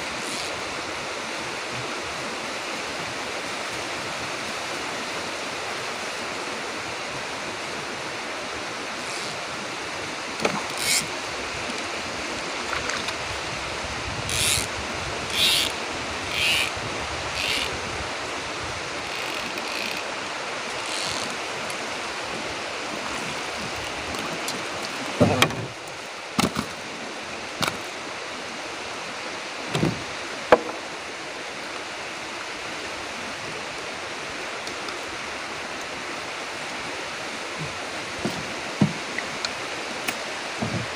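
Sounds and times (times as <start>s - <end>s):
river water: 0.0s - 40.9s
wind: 0.0s - 40.9s
knocks against wooden boat: 25.2s - 25.8s, 29.7s - 30.9s, 37.6s - 39.0s, 40.6s - 40.9s.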